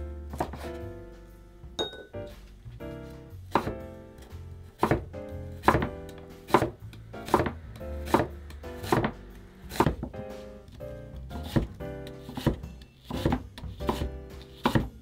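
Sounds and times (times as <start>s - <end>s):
soft background music: 0.0s - 15.0s
knife slicing onion on board: 0.3s - 0.8s, 3.5s - 15.0s.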